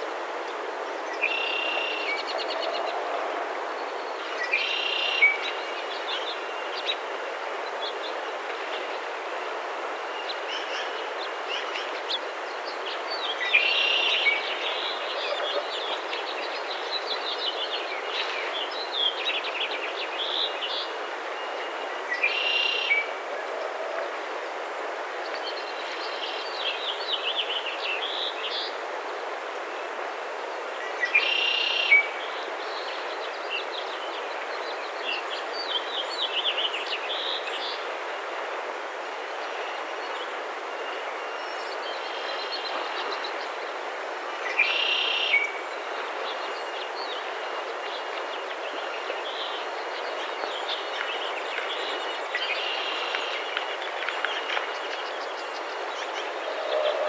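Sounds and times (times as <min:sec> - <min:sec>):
songbirds chirping: 0:38.8 - 0:57.0.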